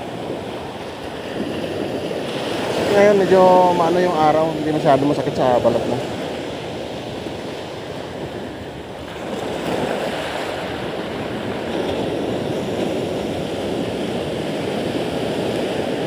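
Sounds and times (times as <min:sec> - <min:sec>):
surf washing up pebble shore: 0:00.0 - 0:16.0.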